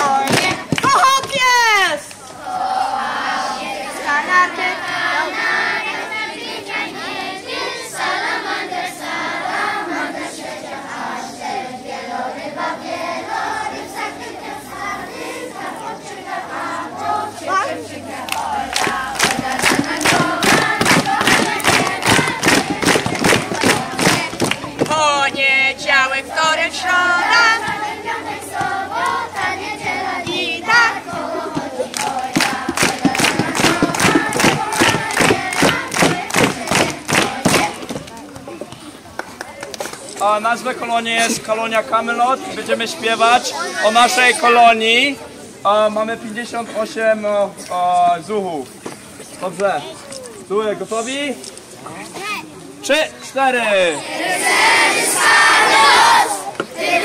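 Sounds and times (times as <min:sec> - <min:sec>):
rhythmic hand clapping: 0:00.0 - 0:01.4, 0:18.2 - 0:25.4, 0:27.2 - 0:38.5
children singing together: 0:02.4 - 0:24.9, 0:26.8 - 0:37.9, 0:54.2 - 0:57.0.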